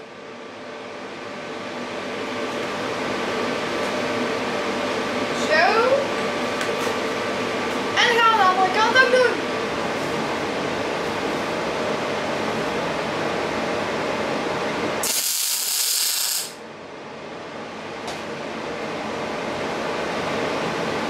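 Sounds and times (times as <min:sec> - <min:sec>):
steady fan-like hiss: 0:00.0 - 0:21.0
welding arc crackling: 0:15.0 - 0:16.6.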